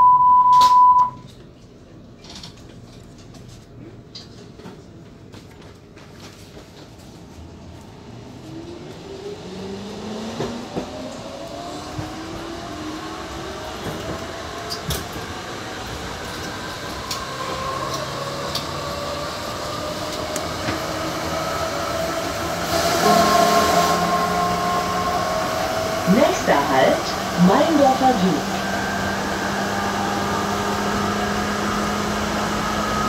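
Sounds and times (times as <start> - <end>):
traction motors whining: 13.1 - 33.0.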